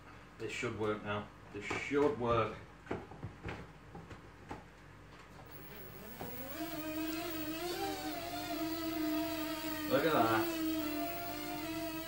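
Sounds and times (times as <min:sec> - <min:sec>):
electric motors whining: 0:05.5 - 0:12.0.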